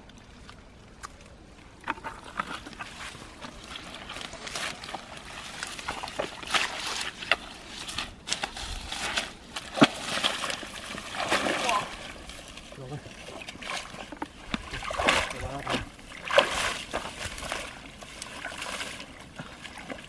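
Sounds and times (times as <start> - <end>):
steps splashing through pond plants: 0.0 - 20.0
water sloshing from bucket: 0.0 - 20.0.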